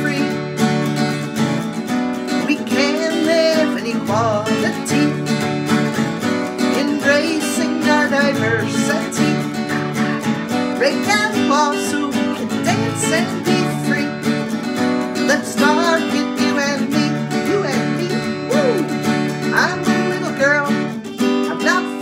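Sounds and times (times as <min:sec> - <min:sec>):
woman singing: 0:00.0 - 0:00.4, 0:02.4 - 0:05.6, 0:06.4 - 0:22.0
acoustic guitar strumming chords: 0:00.0 - 0:22.0.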